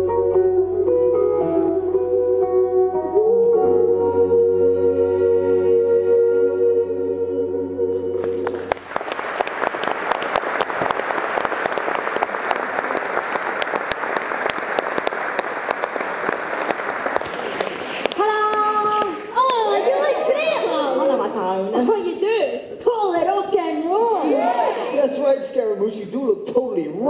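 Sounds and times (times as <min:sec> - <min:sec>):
held keyboard chord: 0:00.0 - 0:08.7
audience applauding: 0:08.2 - 0:20.5
voices: 0:17.2 - 0:25.3.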